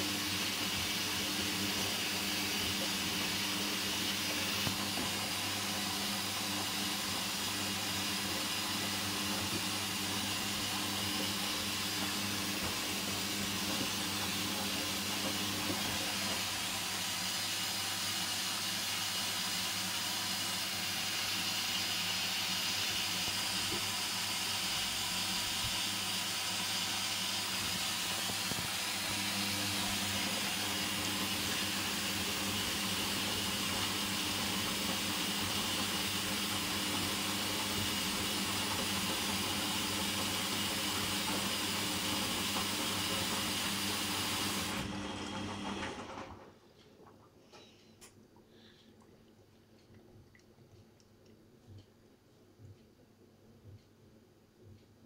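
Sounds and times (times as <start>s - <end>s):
water swishing in drum: 0.0s - 36.6s
washing machine motor hum: 0.0s - 51.9s.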